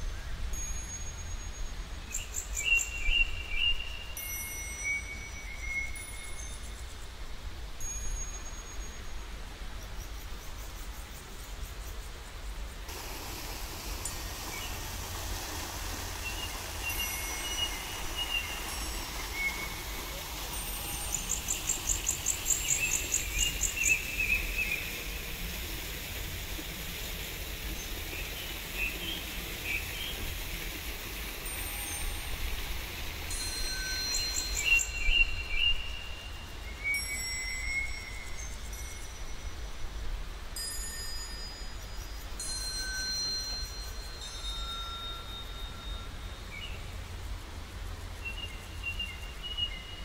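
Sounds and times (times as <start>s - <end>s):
outdoor hiss: 0.0s - 50.0s
songbirds chirping: 8.4s - 37.2s
fast high bird trill: 16.2s - 25.0s.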